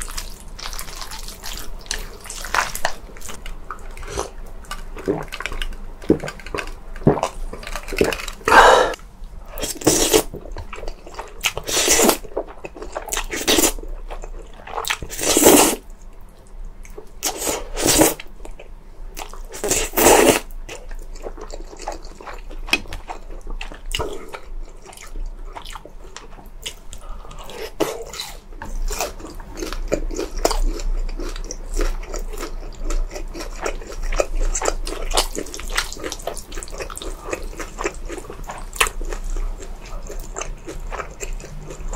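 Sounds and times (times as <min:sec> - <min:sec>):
chewing: 0:09.6 - 0:41.9.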